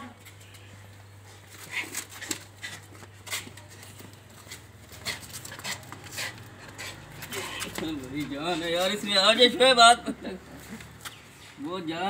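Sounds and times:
clicks knocks and scuffs: 0:01.4 - 0:08.9.

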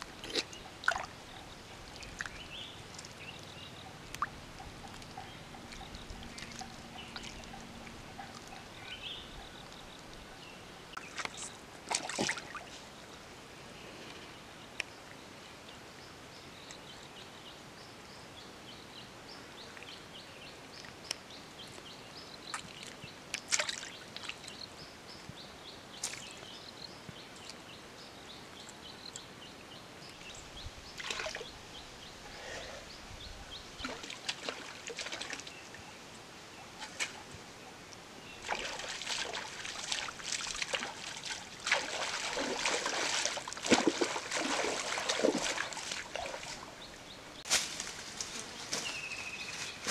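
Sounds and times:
person wading through stream: 0:00.0 - 0:09.2, 0:11.0 - 0:13.1, 0:22.6 - 0:24.6, 0:31.0 - 0:31.5, 0:33.8 - 0:35.6, 0:38.2 - 0:47.4
water dripping: 0:00.0 - 0:10.3, 0:38.4 - 0:47.1.

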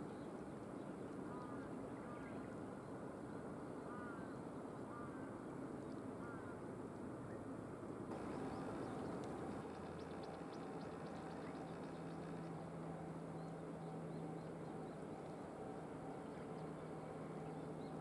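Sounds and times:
bird chirping: 0:08.1 - 0:12.5
low outdoor rumble: 0:08.1 - 0:18.0.

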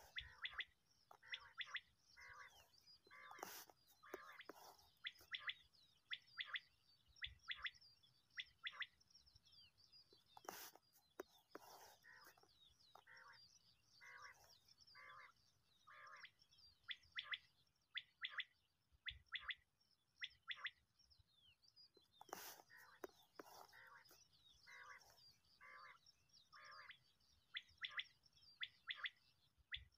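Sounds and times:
quail calling: 0:00.0 - 0:05.6
faint small-bird chirps: 0:00.0 - 0:29.9.

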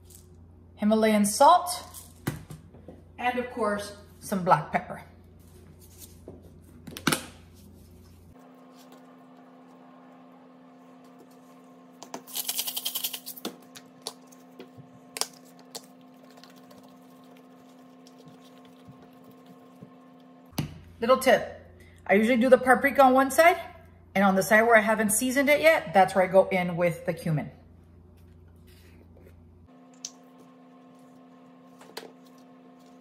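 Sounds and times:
steady low hum: 0:00.0 - 0:33.0
spice jar shaking rattle: 0:12.3 - 0:13.4.

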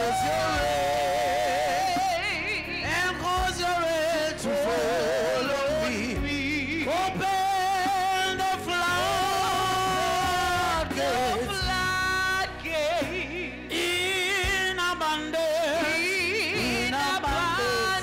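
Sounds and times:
woman singing: 0:10.7 - 0:18.0.

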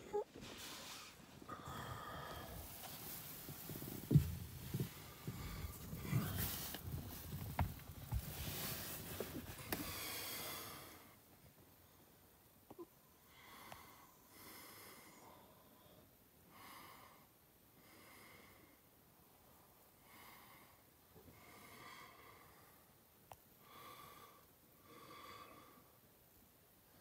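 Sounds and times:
person breathing slowly: 0:00.7 - 0:07.3, 0:08.5 - 0:11.3, 0:13.2 - 0:18.9, 0:20.0 - 0:23.0, 0:23.6 - 0:26.0.

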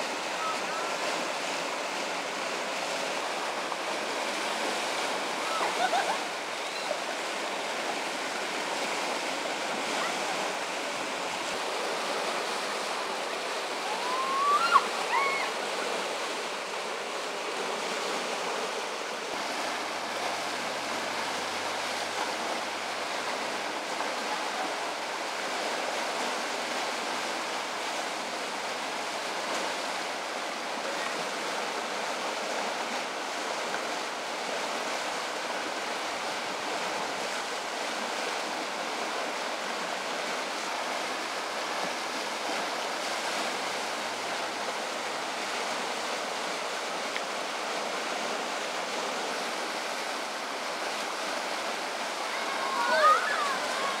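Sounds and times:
river rushing over rapids: 0:00.0 - 0:54.0
high-pitched rising call: 0:13.8 - 0:15.5.

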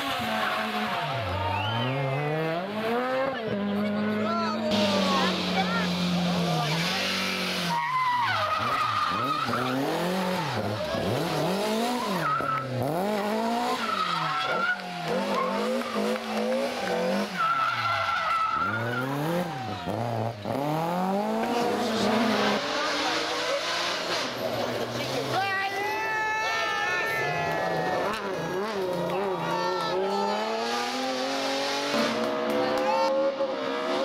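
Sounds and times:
rally car engine revving: 0:00.0 - 0:25.8, 0:27.5 - 0:34.0
tyre squeal: 0:06.7 - 0:10.7, 0:11.8 - 0:12.8, 0:16.8 - 0:19.7.

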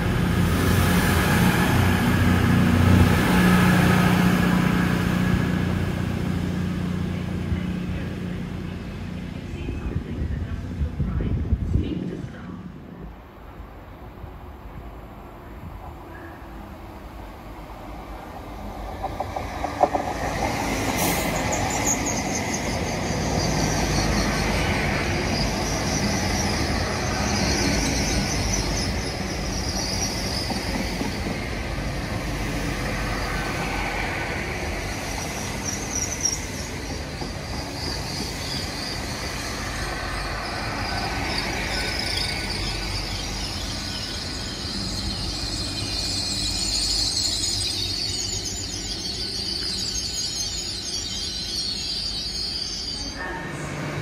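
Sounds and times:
train wheels rumbling: 0:16.8 - 0:54.0
high-pitched brake squeal: 0:20.6 - 0:54.0.

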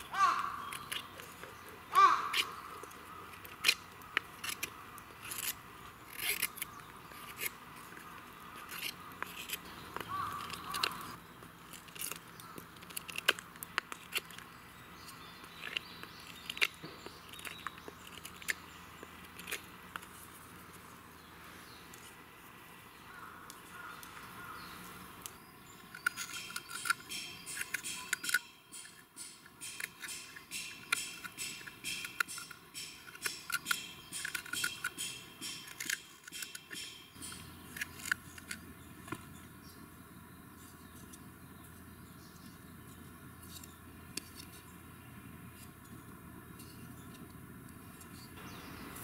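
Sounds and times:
knife scraping wood: 0:00.4 - 0:22.6, 0:25.2 - 0:39.3, 0:42.4 - 0:44.7.

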